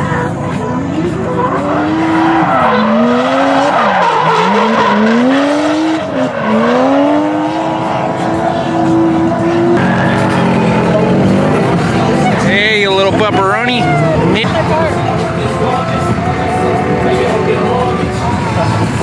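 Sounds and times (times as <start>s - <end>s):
car engine revving: 0.0s - 19.0s
tires squealing: 0.0s - 19.0s.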